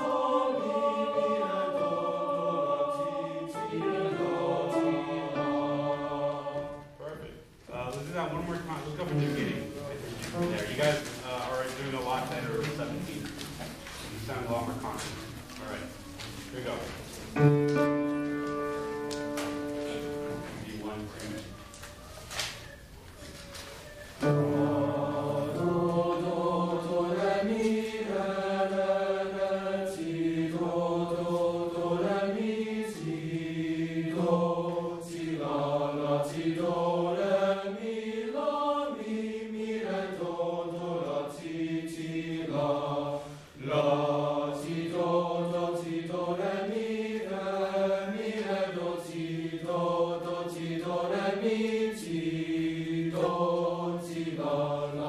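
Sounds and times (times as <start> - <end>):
boys' choir singing: 0.0 - 7.2, 16.6 - 21.5, 24.2 - 55.0.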